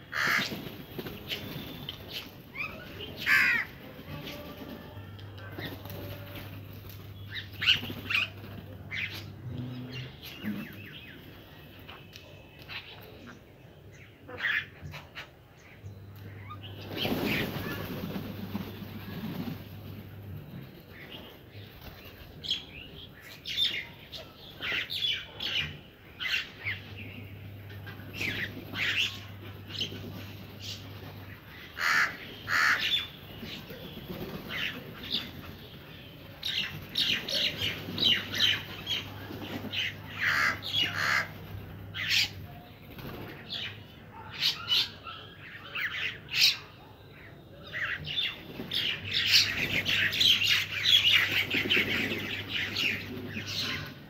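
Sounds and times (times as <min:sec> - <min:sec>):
other birds calling: 0:00.0 - 0:54.0
crows cawing: 0:00.1 - 0:00.5, 0:03.2 - 0:03.8, 0:31.8 - 0:33.1, 0:40.2 - 0:41.4.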